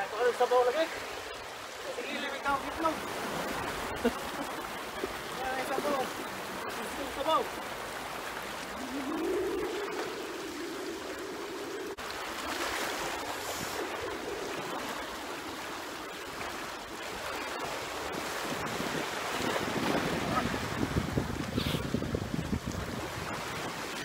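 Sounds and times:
small waves lapping on rocks: 0.0s - 24.0s
wind buffeting microphone: 8.7s - 12.0s, 18.0s - 24.0s.

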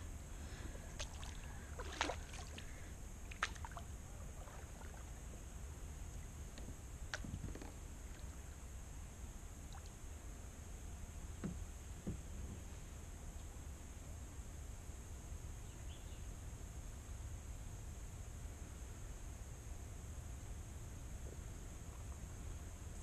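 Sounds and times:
steady low rumble: 0.0s - 15.6s.

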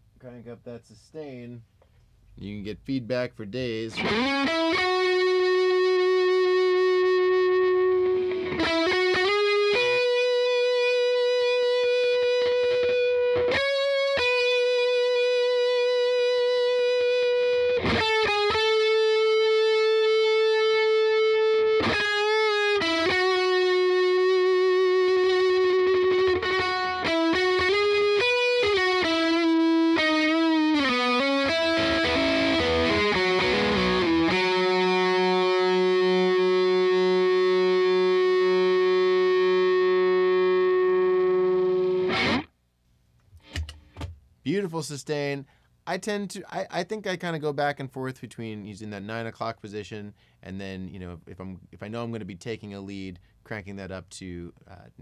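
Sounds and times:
overdriven electric guitar lead: 3.9s - 42.5s.

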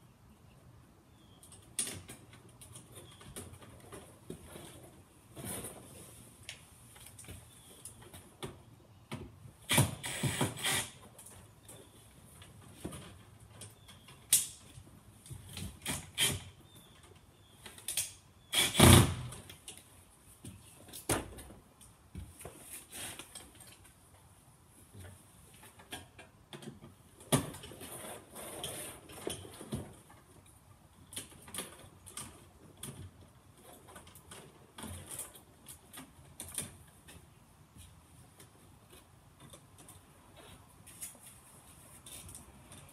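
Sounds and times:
clicks and rustling of wires: 1.2s - 42.9s.

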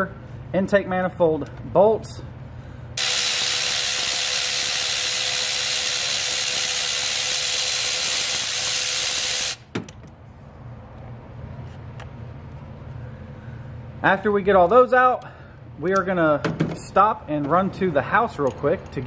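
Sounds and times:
cordless ratchet running: 3.0s - 9.7s.

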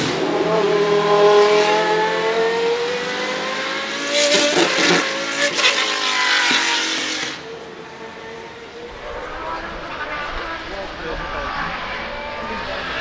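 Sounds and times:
car engine accelerating hard: 8.9s - 13.0s.

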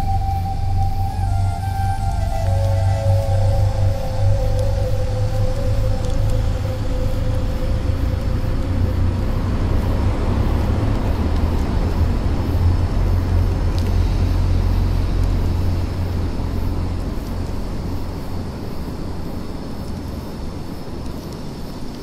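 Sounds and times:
held higher tone: 0.0s - 8.1s
dark ambient drone music: 0.0s - 21.3s.

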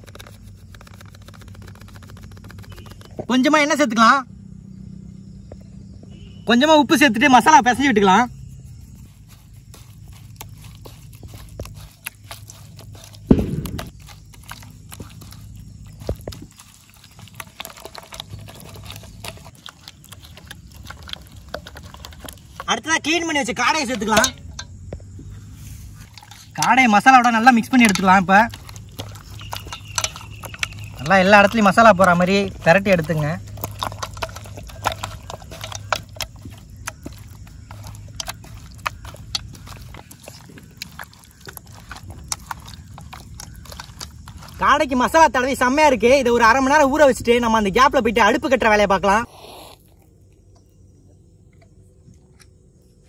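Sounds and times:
paste squelching mixed by hand: 0.0s - 3.3s, 6.5s - 50.8s.

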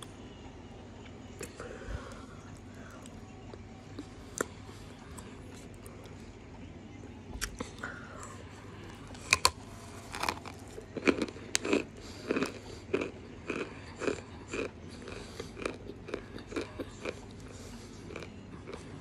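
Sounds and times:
crunchy chewing: 7.4s - 19.0s.

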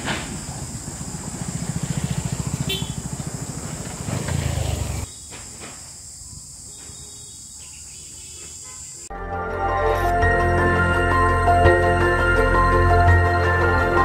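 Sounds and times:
motorcycle engine running: 0.4s - 5.1s
music: 9.1s - 14.0s.

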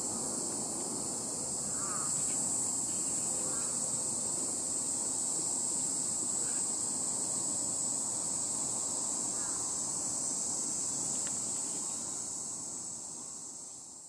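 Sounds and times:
insects buzzing: 0.0s - 14.0s.

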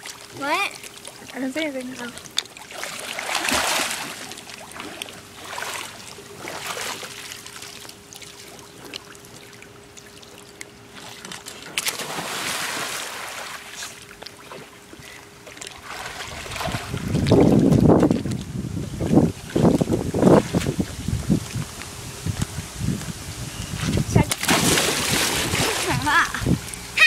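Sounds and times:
pool water splashing and lapping: 0.0s - 22.8s, 23.8s - 27.0s
faint steady hum: 0.0s - 27.0s
person jumping into pool: 2.6s - 7.3s, 11.0s - 14.8s, 24.3s - 27.0s.

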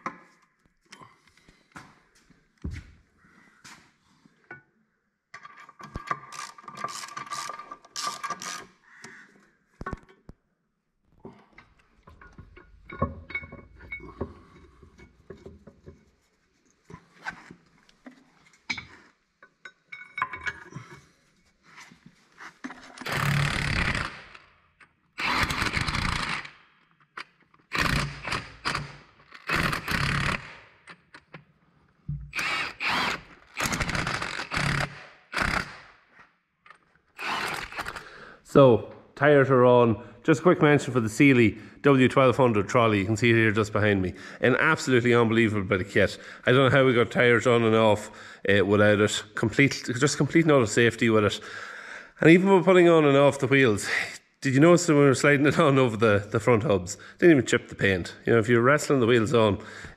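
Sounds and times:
metal knocks and clatter: 11.3s - 16.1s
impact wrench bursts: 23.0s - 24.4s, 25.2s - 26.6s, 27.7s - 30.7s, 32.3s - 35.9s, 37.2s - 38.1s.

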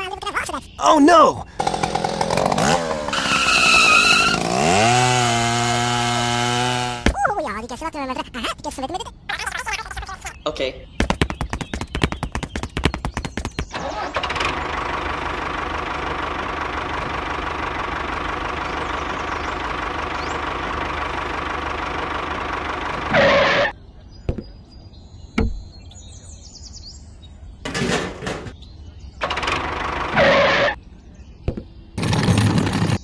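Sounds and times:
tractor engine running: 1.6s - 7.1s, 11.2s - 23.7s, 29.2s - 30.8s, 32.0s - 33.0s.

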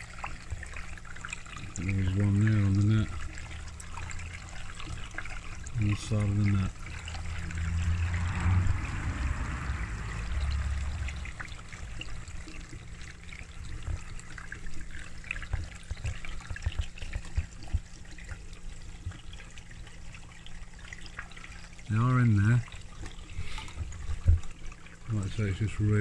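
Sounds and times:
water trickling and splashing: 0.0s - 26.0s
low rumble: 7.0s - 12.5s.

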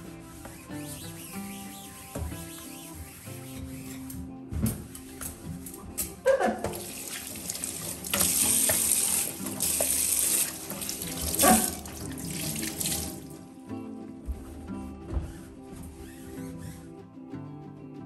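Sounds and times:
water splashing over hands: 6.8s - 13.3s
tap running into steel sink: 7.9s - 13.2s.

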